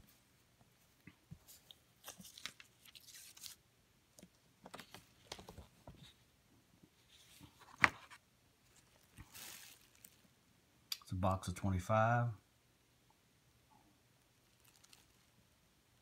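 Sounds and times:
paper rustling and crinkling: 0:01.4 - 0:03.6, 0:04.6 - 0:06.2, 0:07.0 - 0:10.2, 0:14.5 - 0:15.3.

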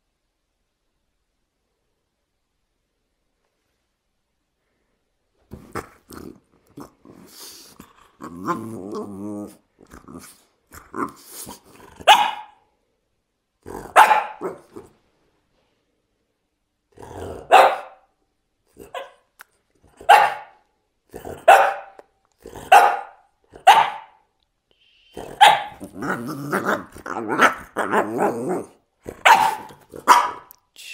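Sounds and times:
dog barking: 0:12.0 - 0:12.6, 0:13.9 - 0:14.8, 0:17.3 - 0:18.1, 0:18.8 - 0:19.3, 0:20.0 - 0:20.6, 0:21.3 - 0:22.0, 0:22.6 - 0:24.3, 0:25.2 - 0:26.0, 0:29.1 - 0:30.5.

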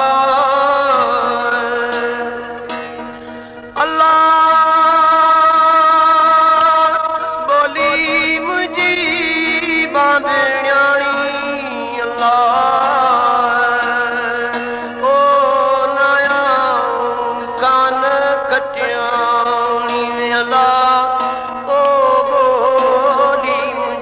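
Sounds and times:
man singing: 0:00.0 - 0:24.0.

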